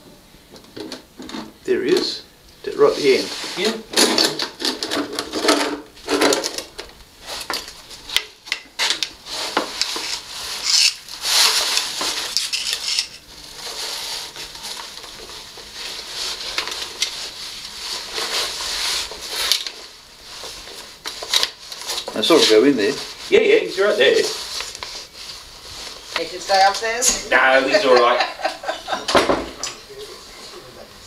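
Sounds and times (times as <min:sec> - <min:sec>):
metal hook scraping on tiles: 0:12.4 - 0:13.2.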